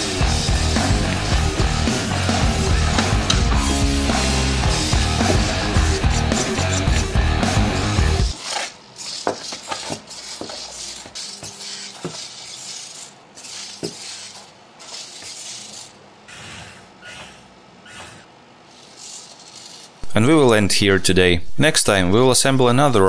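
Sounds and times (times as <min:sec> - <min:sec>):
faint servo whine: 0:07.8 - 0:20.1.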